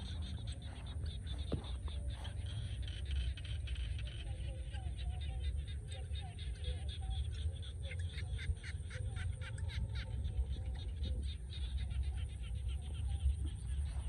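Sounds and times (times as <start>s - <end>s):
rapidly repeated animal calls: 0.0s - 14.0s
steady low rumble: 0.0s - 14.0s.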